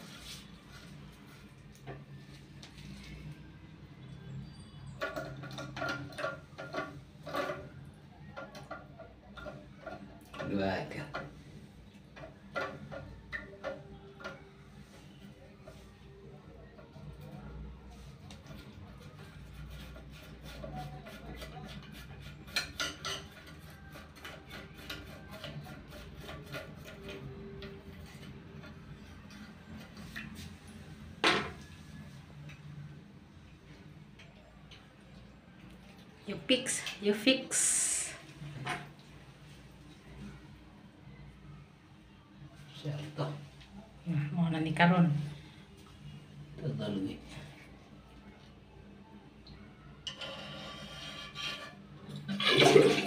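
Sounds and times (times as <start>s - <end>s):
toilet flush handle clicking and scraping: 50.1s - 53.0s.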